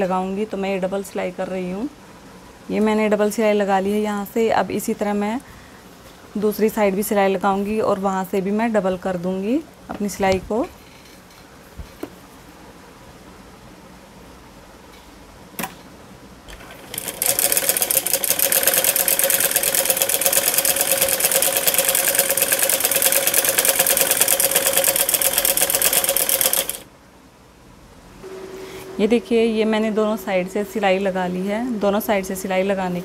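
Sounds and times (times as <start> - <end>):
sewing machine stitching: 16.5 - 26.8.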